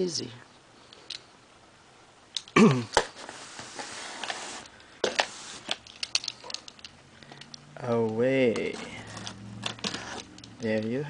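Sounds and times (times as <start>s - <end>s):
cardboard scraping: 3.0s - 5.8s, 8.6s - 10.4s.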